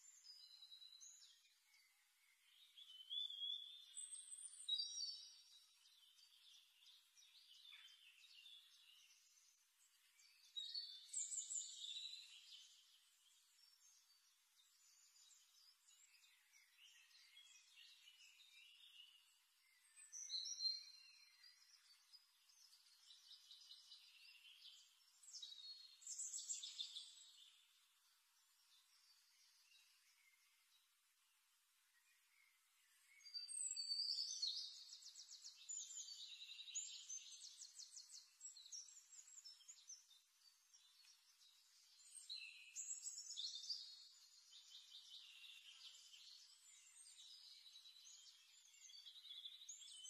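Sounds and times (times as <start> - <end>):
birds chirping and trilling: 0.0 - 50.0.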